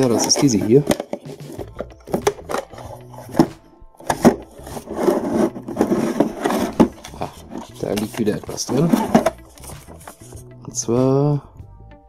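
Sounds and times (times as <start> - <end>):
plastic rubbing and scraping: 0.0 - 10.4
plastic case clicks and knocks: 0.3 - 2.8.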